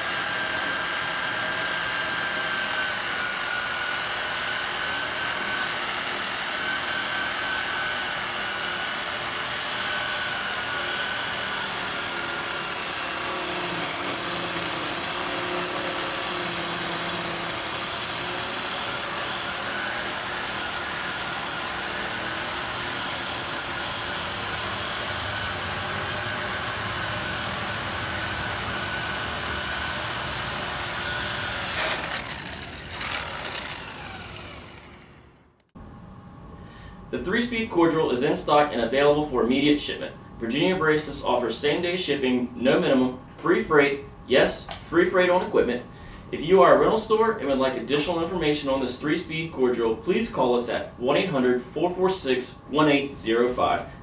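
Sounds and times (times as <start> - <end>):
electric core drill whining: 0.0 - 35.7.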